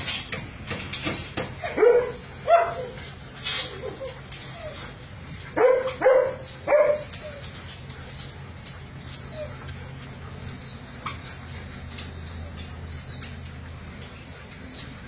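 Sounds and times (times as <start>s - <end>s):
dog barking: 1.7s - 3.0s, 5.6s - 7.1s.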